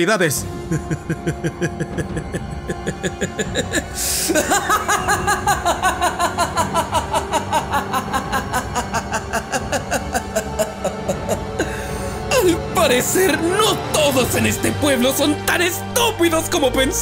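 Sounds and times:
dramatic background music: 0.0 - 17.0
man laughing maniacally: 0.5 - 13.4.

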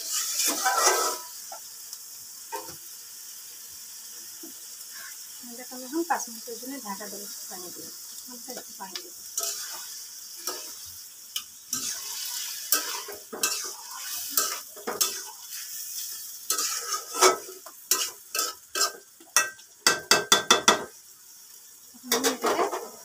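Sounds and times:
spatula scraping a pan: 0.0 - 1.4, 9.3 - 20.9, 22.1 - 23.0
food sizzling: 0.0 - 23.0
spatula tapping against pan: 19.4 - 20.9.

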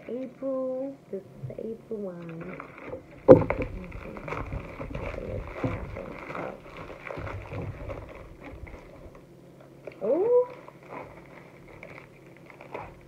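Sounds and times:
bubble mailer rustling and crinkling: 1.6 - 13.0.

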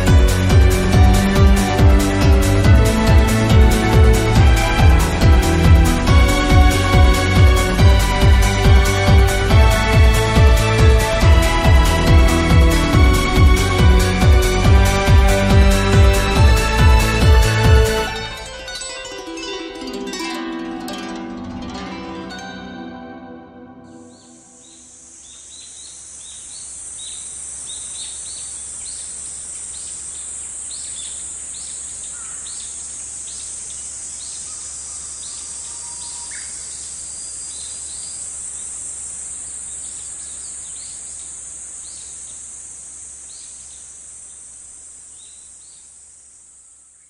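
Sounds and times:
high-pitched insect drone: 23.8 - 47.0
bird chirps: 23.9 - 38.8, 39.4 - 42.5.

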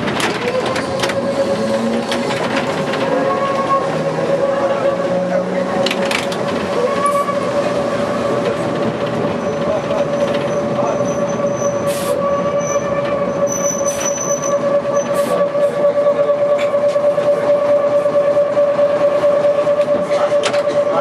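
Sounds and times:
tram motor whine: 0.0 - 21.0
wheels rumbling on track: 0.0 - 21.0.

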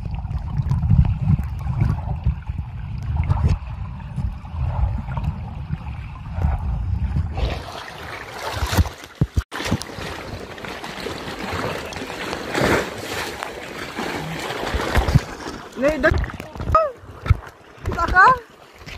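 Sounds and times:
muffled underwater rumble: 0.0 - 7.4
water sloshing and splashing: 0.0 - 18.9.

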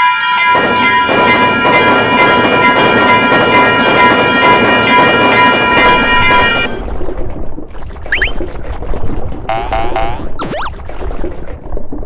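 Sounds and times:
railroad crossing bell ringing: 0.0 - 6.8
train passing: 0.0 - 6.8.

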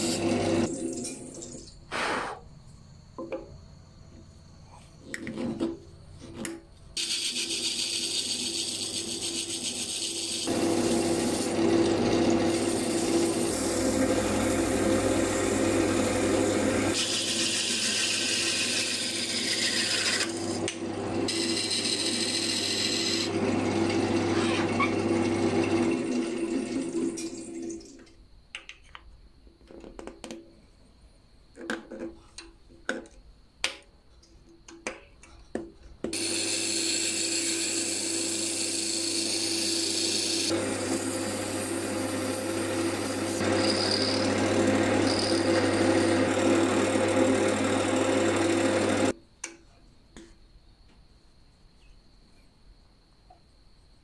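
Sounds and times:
wood lathe running: 0.0 - 0.7, 7.0 - 27.3, 36.2 - 49.1
chisel scraping spinning bamboo: 36.2 - 48.6.

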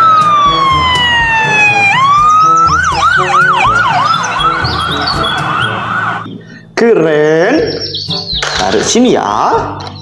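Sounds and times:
police siren wailing and yelping: 0.0 - 6.3.

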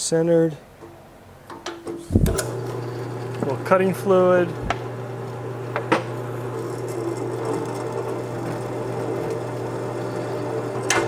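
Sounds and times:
drill press motor drilling steel: 2.4 - 11.0.

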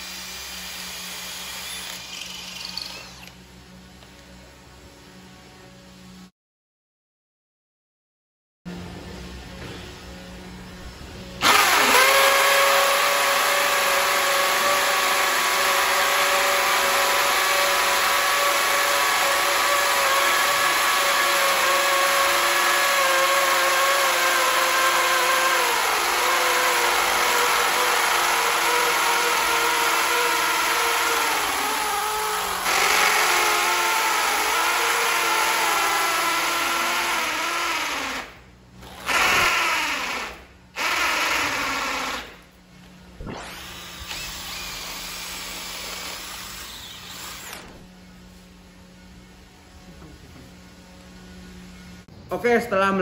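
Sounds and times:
hammer drill boring into concrete: 0.0 - 3.4, 11.4 - 42.4, 43.3 - 47.7.

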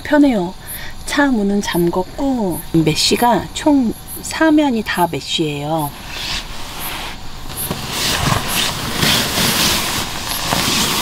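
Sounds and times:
backpack and fabric rustling: 5.9 - 11.0.

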